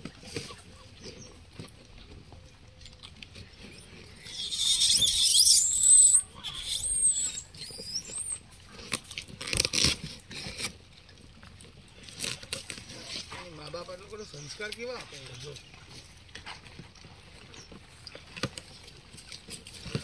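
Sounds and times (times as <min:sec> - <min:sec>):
monkey screeching: 0:03.7 - 0:08.5.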